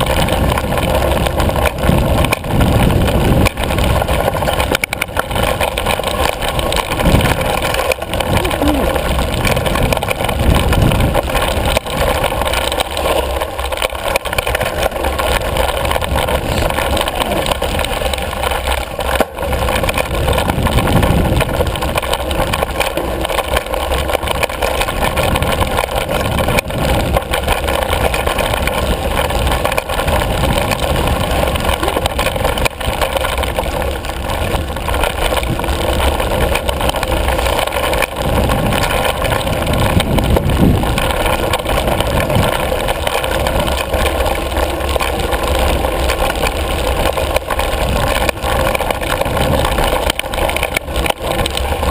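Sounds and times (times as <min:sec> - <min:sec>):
bike knocks and rattles: 0:00.0 - 0:51.9
low rumble: 0:00.0 - 0:51.9
wind and tyre rush: 0:00.0 - 0:51.9.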